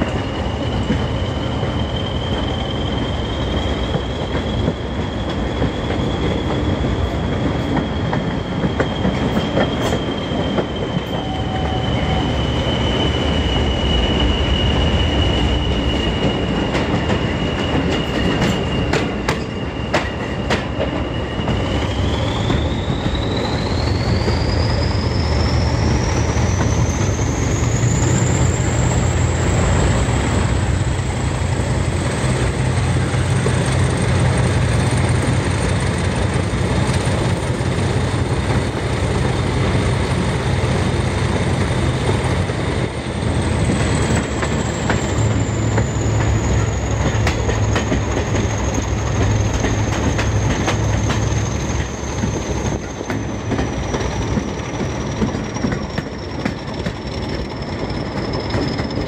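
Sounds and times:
diesel locomotive engine rumble: 0.0s - 59.0s
turbocharger whistle: 9.9s - 20.1s.

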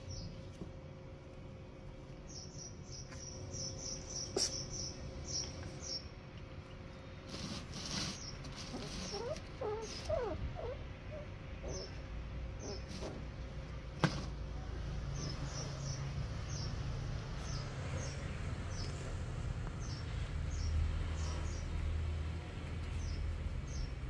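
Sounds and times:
puppies whining and whimpering: 8.7s - 12.0s.

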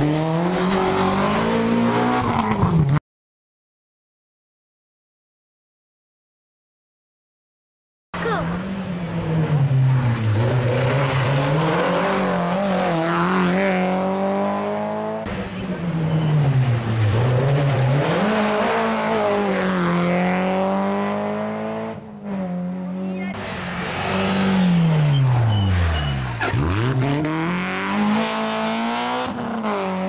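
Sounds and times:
rally car engine revving: 0.0s - 3.0s, 8.2s - 30.0s.

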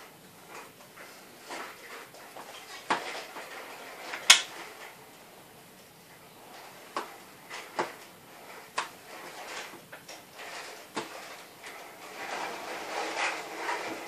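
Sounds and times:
faint scrapes and ticks: 6.2s - 14.0s.

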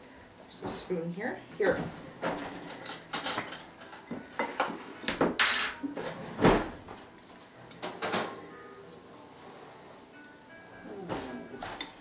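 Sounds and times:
metal spoon and bowls clinking: 5.4s - 5.8s.

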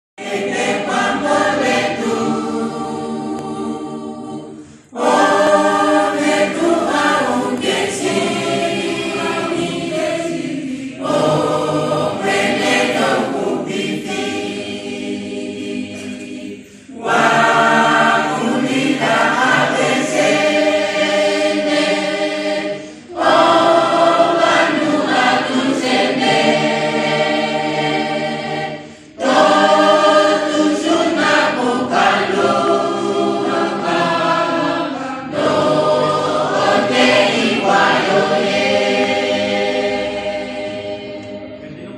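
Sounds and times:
congregation singing a hymn: 0.2s - 41.9s.

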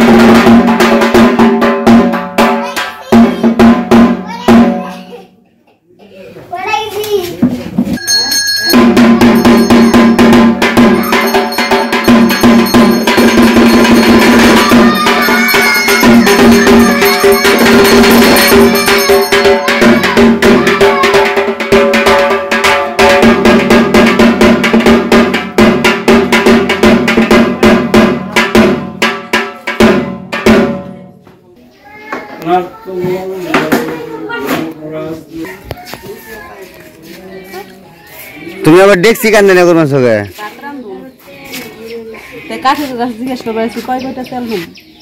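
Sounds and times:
drums beating: 0.0s - 5.1s, 6.8s - 31.4s, 32.0s - 37.6s
metal percussion clanging: 7.9s - 31.0s.

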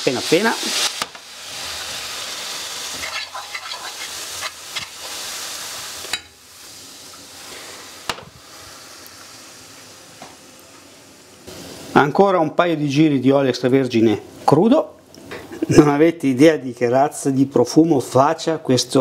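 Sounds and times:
garlic sizzling in hot oil: 0.0s - 12.2s.

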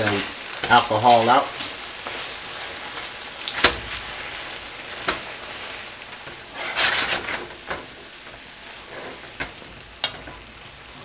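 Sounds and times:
food sizzling in a skillet: 0.0s - 11.0s
tongs clacking against pan: 8.9s - 10.5s.

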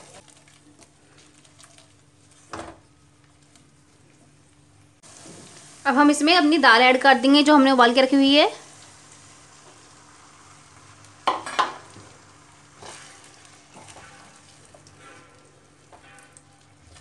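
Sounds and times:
low sizzle: 0.0s - 17.0s
spatula scraping pan: 11.4s - 17.0s.

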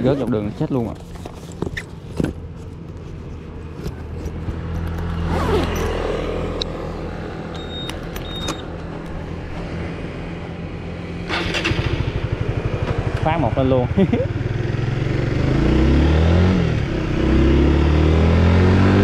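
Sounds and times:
motorcycle engine starting and idling: 11.2s - 15.4s.

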